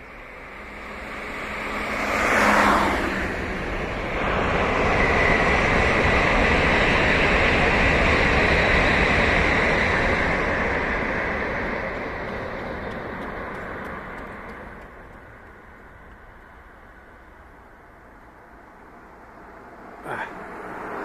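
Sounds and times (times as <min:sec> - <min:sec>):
car passing by: 0:00.0 - 0:07.1, 0:18.6 - 0:21.0
bullet train rushing: 0:00.0 - 0:21.0.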